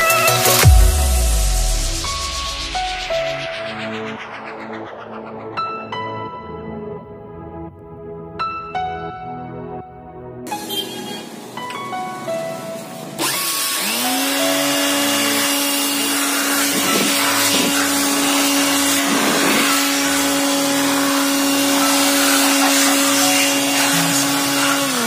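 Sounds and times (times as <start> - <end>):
rush of air: 0.9 - 7.2
electric air blower whining: 10.5 - 25.0.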